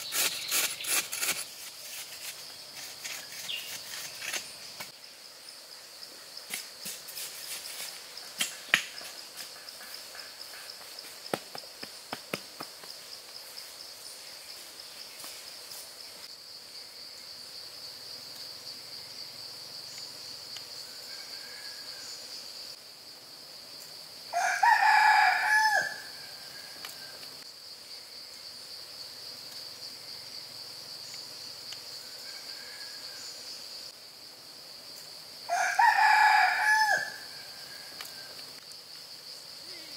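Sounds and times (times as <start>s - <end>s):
high pulsing insect drone: 0.0s - 39.9s
rooster crowing: 24.3s - 26.8s, 35.5s - 37.9s.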